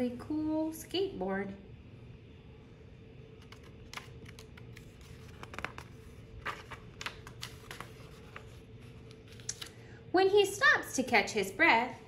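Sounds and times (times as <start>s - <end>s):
paper pages being turned: 3.4s - 9.8s.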